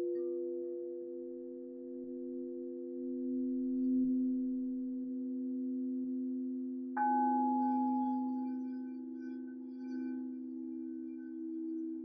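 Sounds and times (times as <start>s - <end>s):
singing bowl struck: 7.0s - 11.2s
singing bowls ringing: 7.0s - 12.0s.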